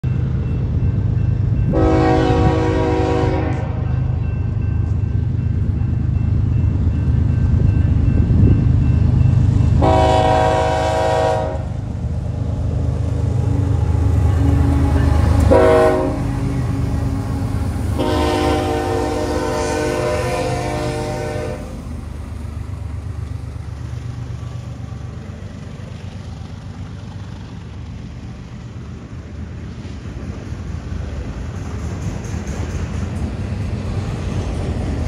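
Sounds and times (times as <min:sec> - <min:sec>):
low rumble of train: 0:00.0 - 0:35.0
locomotive air horn blasts: 0:01.7 - 0:03.9, 0:09.8 - 0:11.8, 0:14.3 - 0:16.5, 0:17.9 - 0:21.8.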